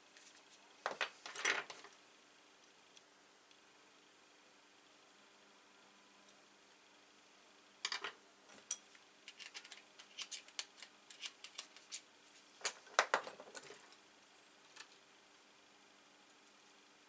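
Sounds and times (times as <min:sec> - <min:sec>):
small metal parts clicking: 0:07.8 - 0:12.0.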